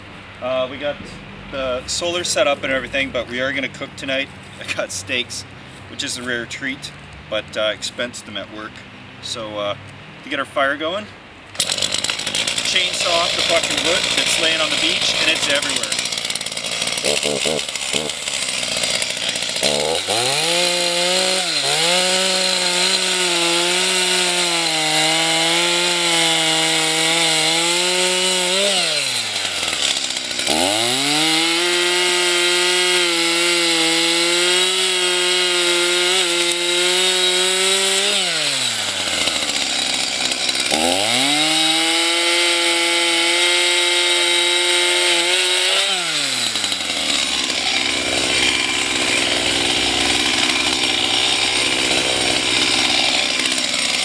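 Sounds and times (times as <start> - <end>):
chainsaw cutting log: 11.5 - 54.0.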